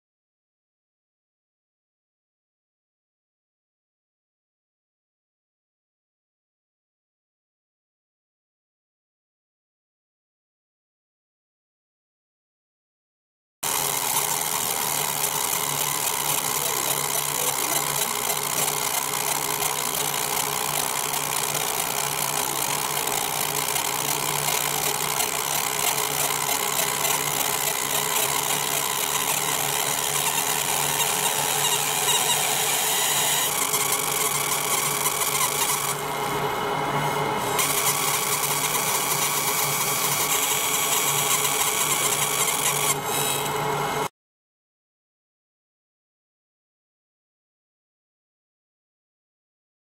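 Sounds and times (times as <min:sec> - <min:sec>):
laser machine buzzing hiss: 0:13.6 - 0:36.5, 0:37.1 - 0:43.6.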